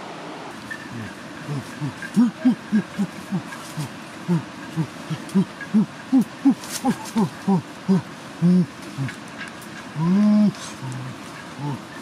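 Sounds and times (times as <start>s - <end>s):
animal hooting: 0.7s - 9.2s.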